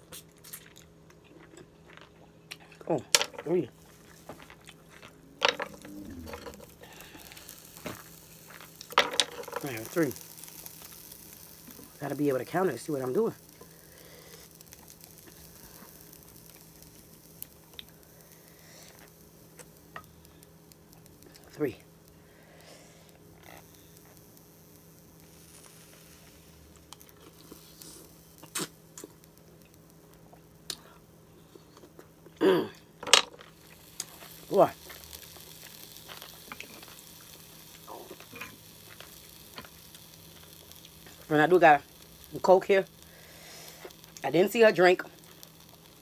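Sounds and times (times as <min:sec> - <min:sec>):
person eating with wet mouth sounds: 0:00.0 - 0:02.6, 0:28.4 - 0:29.2
low steady hum: 0:00.0 - 0:46.0.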